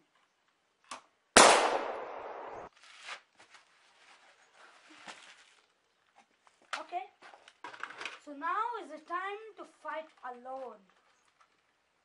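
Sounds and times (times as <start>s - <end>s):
gunshot bang: 1.4s - 2.7s.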